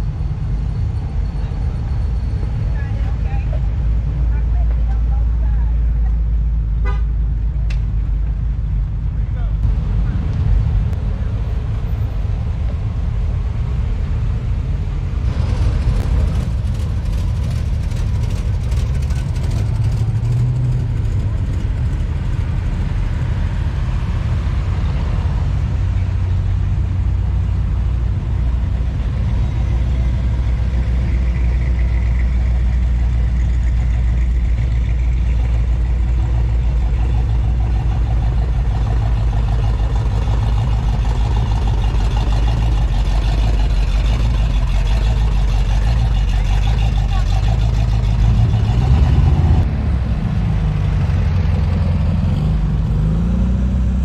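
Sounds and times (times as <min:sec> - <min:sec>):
car engines running: 0:00.0 - 0:54.0
sharp engine crackling: 0:15.2 - 0:23.0, 0:29.2 - 0:53.4.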